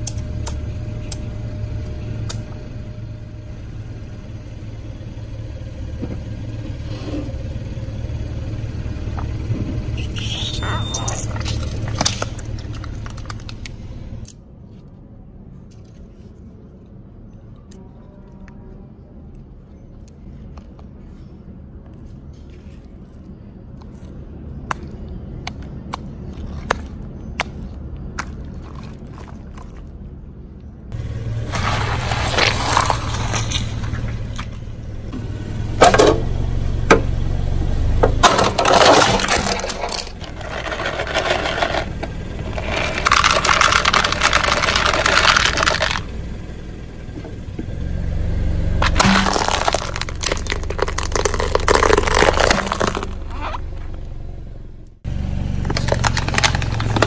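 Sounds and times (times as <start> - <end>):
objects crunching under tyre: 10.0 - 14.3, 31.0 - 35.2, 38.1 - 46.1, 48.8 - 54.3, 55.4 - 57.0
car tyre rolling over concrete: 10.8 - 14.2, 31.0 - 57.0
sharp crack: 48.8 - 53.6.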